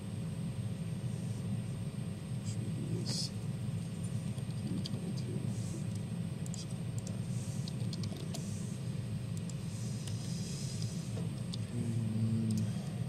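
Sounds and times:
low room hum: 0:00.0 - 0:13.0
keyboard typing: 0:06.4 - 0:08.4.

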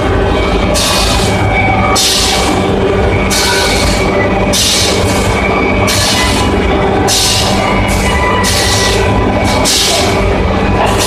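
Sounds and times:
woodworking machine humming: 0:00.0 - 0:11.0.

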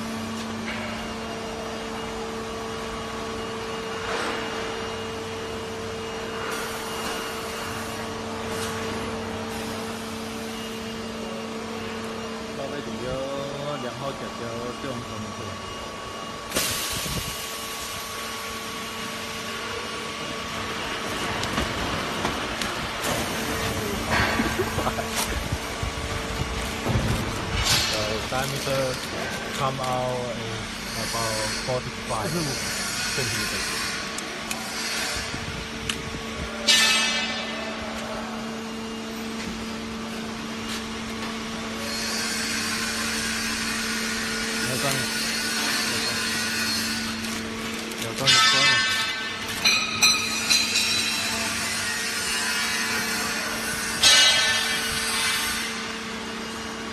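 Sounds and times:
low machine hum: 0:00.0 - 0:56.9
machine hiss: 0:16.5 - 0:18.4.

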